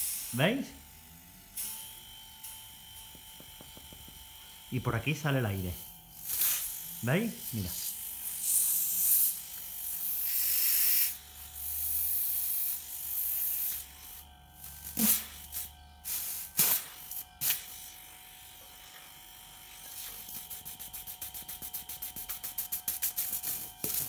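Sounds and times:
compressor humming: 0.0s - 11.9s, 12.6s - 24.0s
air hissing from tube: 5.8s - 6.9s, 7.8s - 18.2s, 19.6s - 24.0s.

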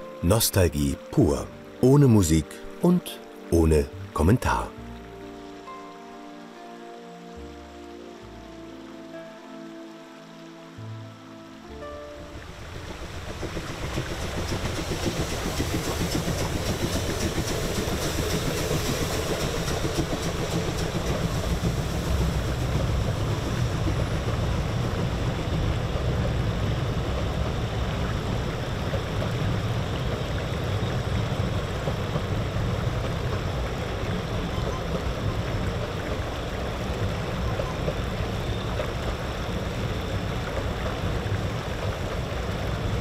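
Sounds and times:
steam train rumbling over bridge: 11.8s - 43.0s.

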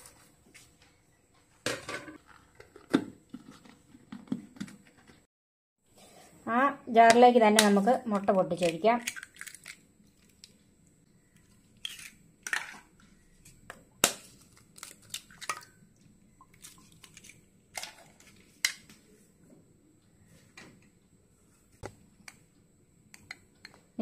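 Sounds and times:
eggs cracking: 8.6s - 10.6s, 14.0s - 15.8s.

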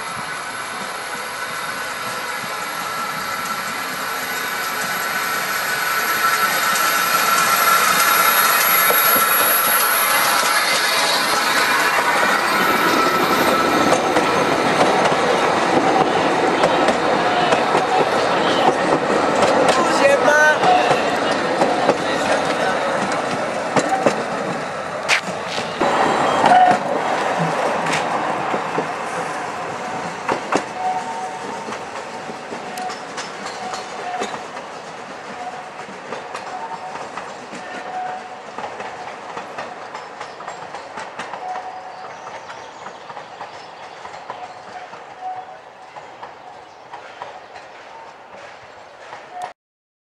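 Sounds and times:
train wheels clattering over rail joints: 1.5s - 20.0s, 26.4s - 49.5s
thin wheel squeal: 4.4s - 13.9s.

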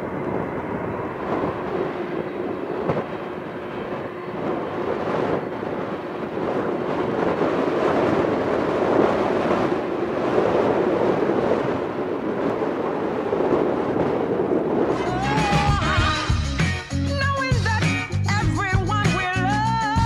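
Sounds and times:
jet engine rumble: 0.0s - 20.0s
wind buffeting microphone: 0.0s - 20.0s.

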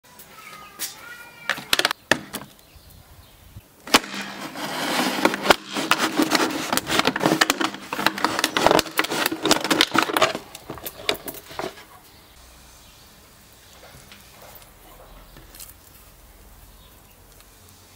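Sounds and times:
plastic crackling and crinkling: 3.8s - 12.0s
knife cutting plastic bottle: 3.9s - 11.9s.

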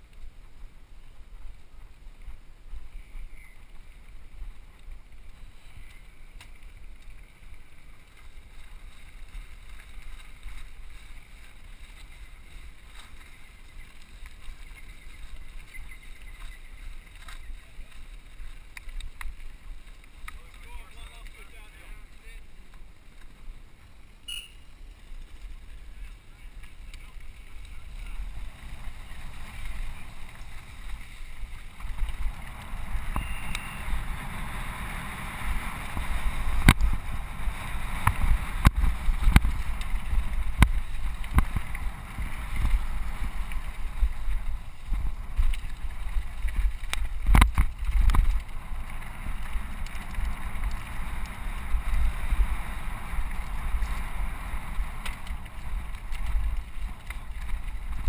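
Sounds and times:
bike tyre rumble on gravel: 0.0s - 58.0s
bike clacking and rattling on stones: 2.2s - 58.0s
wind on microphone: 24.3s - 58.0s.

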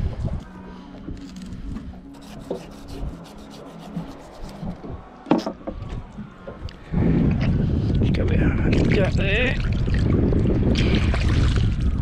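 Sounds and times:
knife scraping fish bones: 2.1s - 4.7s.

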